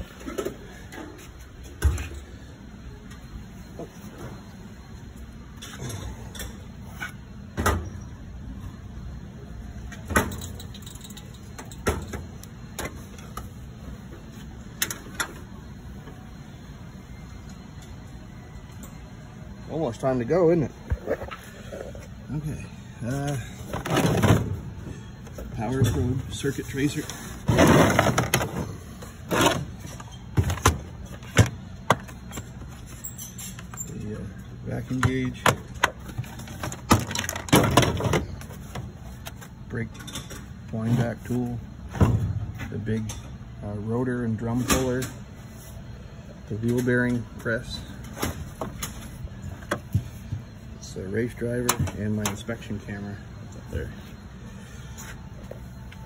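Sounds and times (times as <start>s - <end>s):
metal tool box drawers clunking: 23.7s - 24.6s, 27.4s - 32.5s, 34.9s - 38.4s.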